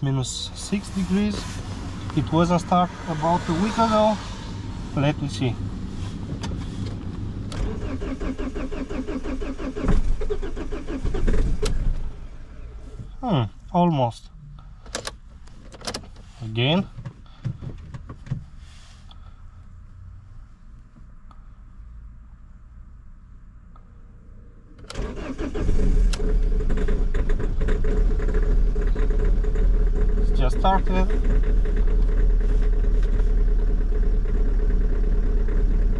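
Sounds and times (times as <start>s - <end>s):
diesel engine cranking: 0.0s - 13.3s, 24.7s - 35.9s.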